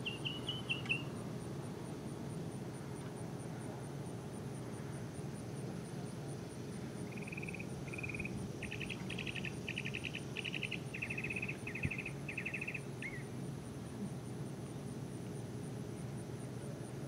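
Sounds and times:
songbird trilling: 0.0 - 1.1, 7.1 - 13.3.

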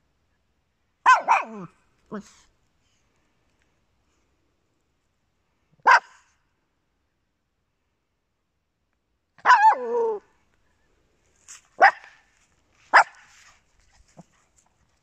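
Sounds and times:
small dog barking: 1.0 - 2.4, 5.8 - 6.3, 9.4 - 10.2, 11.8 - 12.2, 12.9 - 13.3.

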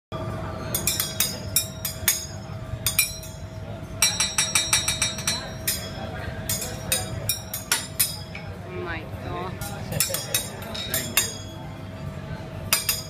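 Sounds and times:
metal spatulas clinking on griddle: 0.6 - 8.5, 9.6 - 11.6, 12.7 - 13.0.

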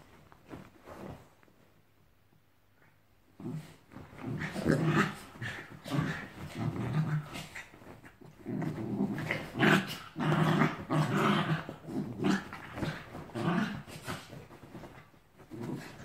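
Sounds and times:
small dogs growling: 3.4 - 16.0.

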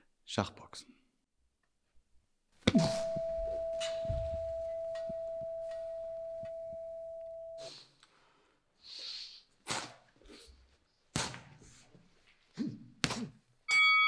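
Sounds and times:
boxing ring bell ringing: 2.7 - 7.6, 13.7 - 14.0.

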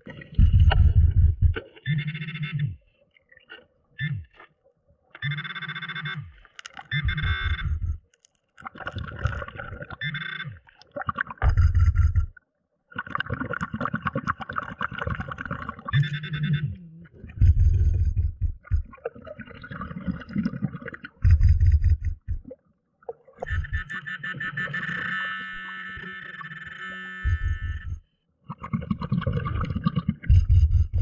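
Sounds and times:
exhaled bubbles rumbling: 0.0 - 1.6, 8.6 - 10.0, 10.9 - 12.4, 13.0 - 16.1, 17.0 - 23.9, 27.3 - 31.0.

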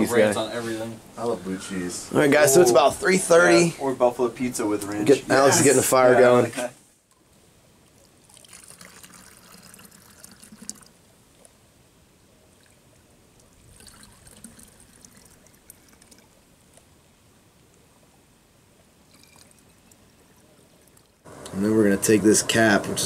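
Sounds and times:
water pouring and trickling: 7.8 - 11.6, 12.5 - 16.8, 19.0 - 21.3.

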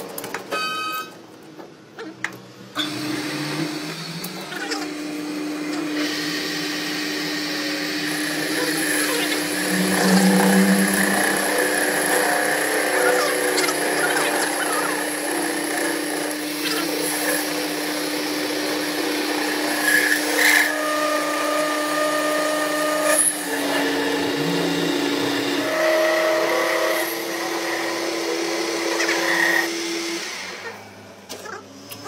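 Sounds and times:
metal lathe cutting steel: 2.8 - 31.1.

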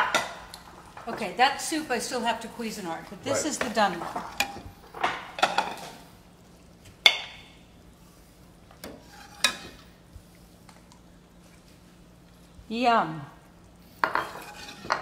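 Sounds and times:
metal ladle scraping and clinking: 14.1 - 15.0.

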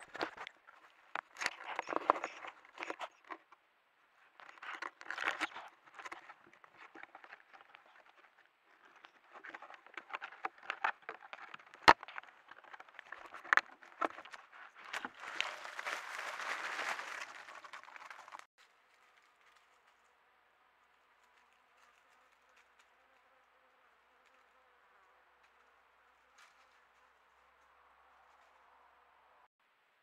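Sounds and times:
rustling in dry leaves: 4.4 - 20.1.

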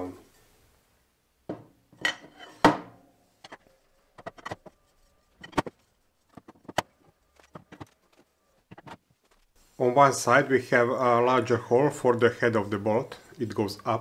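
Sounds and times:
metal frame parts knocking: 2.0 - 4.8, 5.4 - 9.0.

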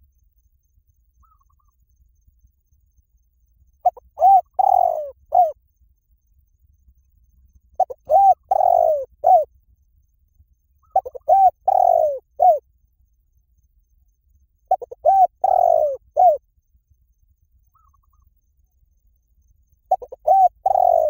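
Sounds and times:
dove cooing: 3.8 - 5.6, 7.8 - 9.5, 10.8 - 12.6, 14.7 - 16.4, 19.9 - 21.0.

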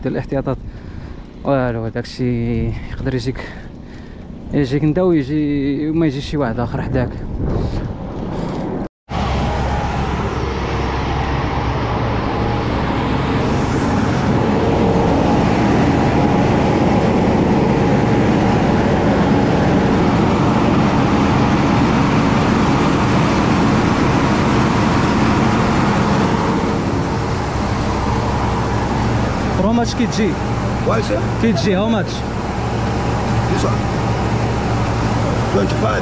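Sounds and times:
rice-milling machines running: 9.2 - 36.0.

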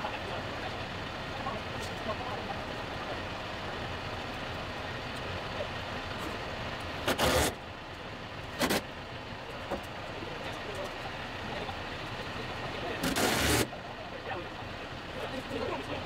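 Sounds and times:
tractor diesel engine running: 0.0 - 16.0
loud bursts of sharper noise: 7.0 - 7.6, 8.6 - 8.9, 13.0 - 13.7.

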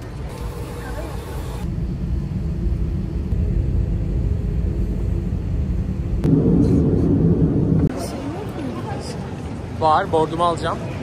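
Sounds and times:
jet engine rumble in cabin: 0.0 - 9.8.

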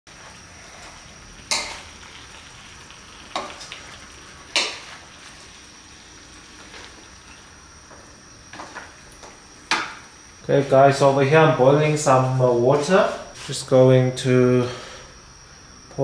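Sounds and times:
food sizzling in a wok: 0.1 - 11.2.

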